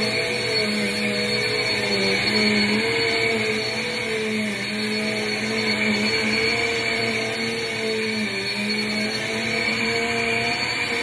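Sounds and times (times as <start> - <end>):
vacuum cleaner running: 0.0 - 11.0.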